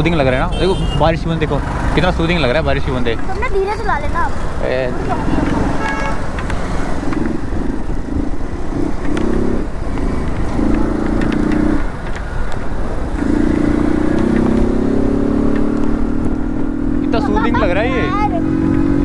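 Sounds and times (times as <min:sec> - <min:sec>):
wind and road noise: 0:00.0 - 0:19.0
motorcycle engine running: 0:04.3 - 0:12.4.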